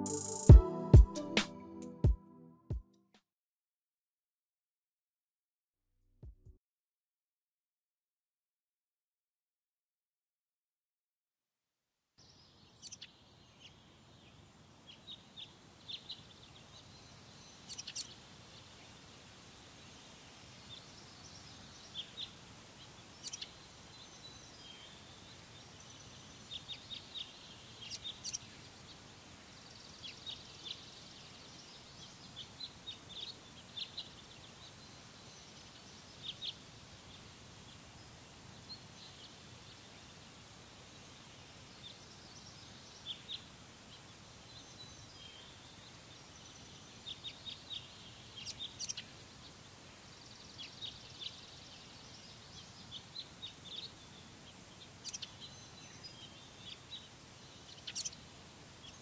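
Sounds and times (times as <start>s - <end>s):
small birds chirping: 12.2s - 59.0s
steady background hiss: 12.2s - 59.0s.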